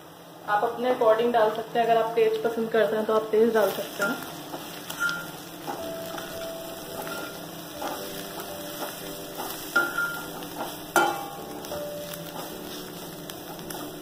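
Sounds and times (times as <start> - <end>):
onions sizzling in oil: 0.6 - 14.0
spatula clanking on pan: 4.0 - 12.8
metal spatula scraping pan: 6.9 - 8.1.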